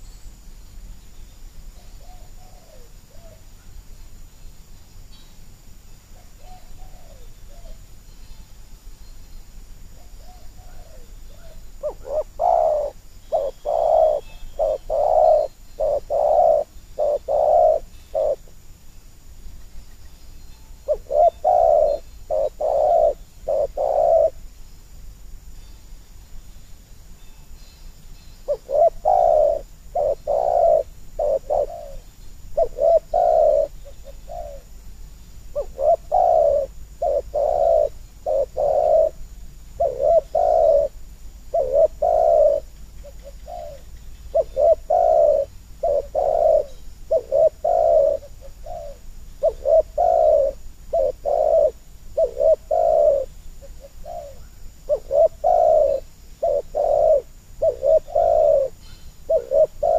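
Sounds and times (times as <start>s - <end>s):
dove cooing: 1.8s - 3.5s, 6.1s - 7.9s, 9.9s - 18.6s, 20.8s - 24.5s, 28.5s - 34.8s, 35.5s - 59.9s.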